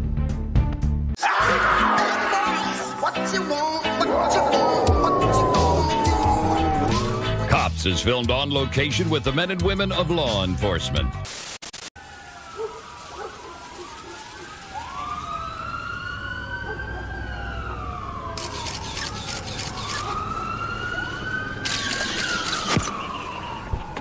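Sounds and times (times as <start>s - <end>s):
police sirens wailing: 1.2s - 7.7s, 12.0s - 24.0s.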